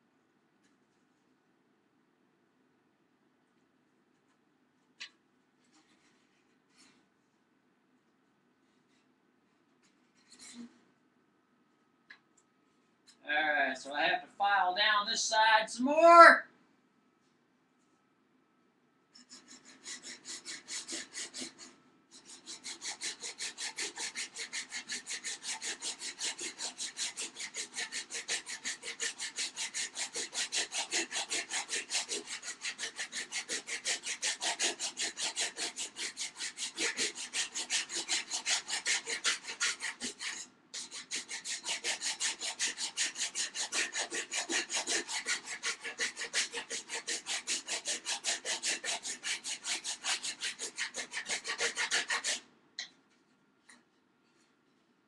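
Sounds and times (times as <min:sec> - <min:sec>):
hand file rasping on wood: 0:19.2 - 0:52.4.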